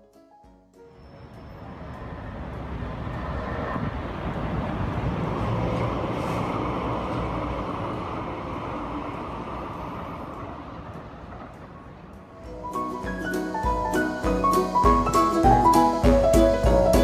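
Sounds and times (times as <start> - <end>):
passing vehicle rumble: 1.0 - 12.5.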